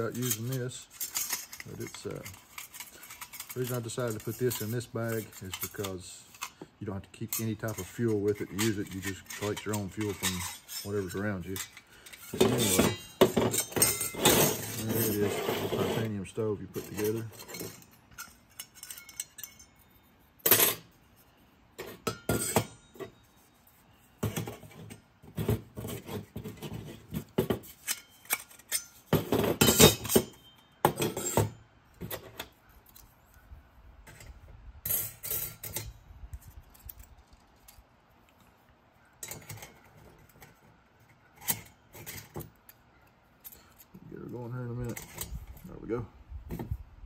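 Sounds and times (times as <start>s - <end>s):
metal stove parts clinking: 0.0s - 15.4s, 16.0s - 21.0s, 21.8s - 23.5s, 24.2s - 33.0s, 34.1s - 36.1s, 39.2s - 42.8s, 44.7s - 45.6s.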